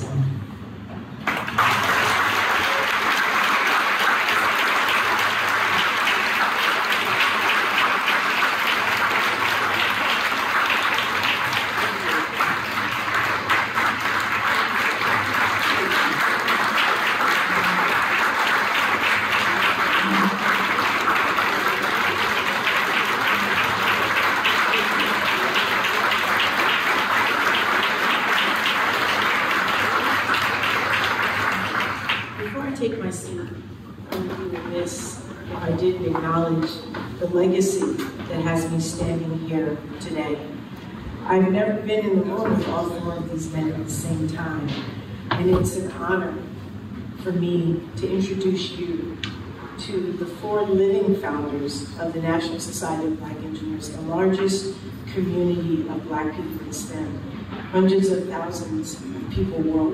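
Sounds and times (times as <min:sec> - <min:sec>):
audience applauding: 0:01.2 - 0:32.6.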